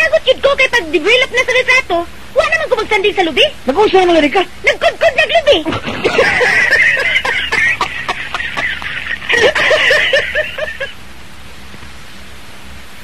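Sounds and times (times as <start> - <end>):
steady hiss: 0.0 - 13.0
person laughing: 4.8 - 11.0.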